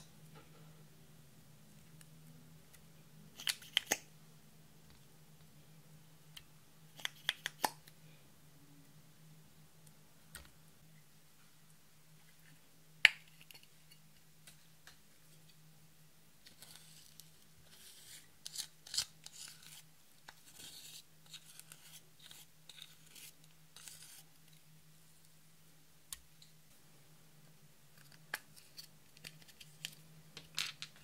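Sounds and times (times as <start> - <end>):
faint low hum: 0.0 - 31.0
spatula scraping eyeshadow: 16.5 - 24.3.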